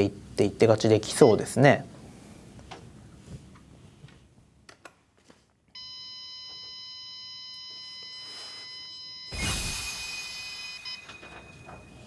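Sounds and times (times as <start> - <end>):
steady electronic beep: 5.8 - 12.0.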